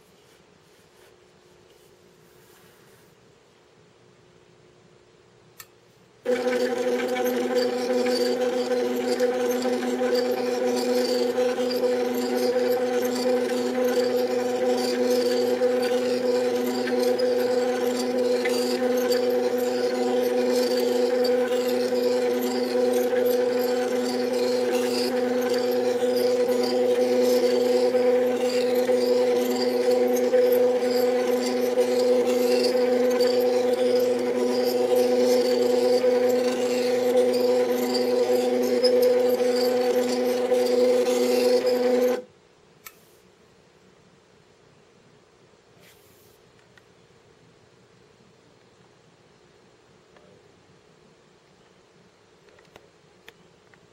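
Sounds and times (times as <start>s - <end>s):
rough rasping noise: 6.3s - 42.2s
stepper motors buzzing whine: 6.3s - 42.2s.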